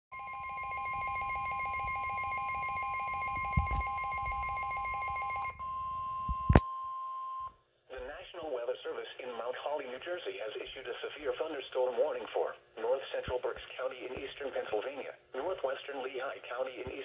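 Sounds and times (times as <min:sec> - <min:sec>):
steady warning alarm tone: 0:00.2 - 0:07.5.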